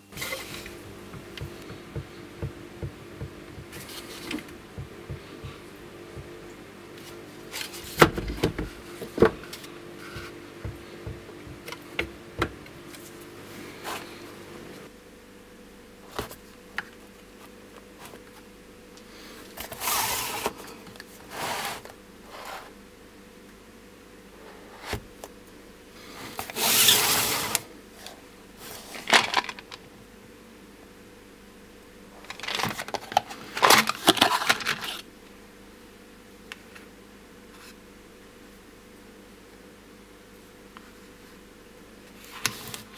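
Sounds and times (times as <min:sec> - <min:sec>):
cardboard boxes scraping: 0:00.1 - 0:05.6, 0:21.3 - 0:22.7, 0:26.3 - 0:27.6.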